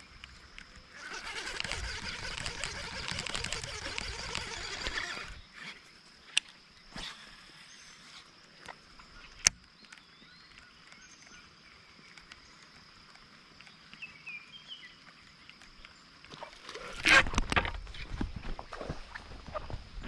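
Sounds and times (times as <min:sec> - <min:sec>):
small birds chirping: 0:01.6 - 0:16.7.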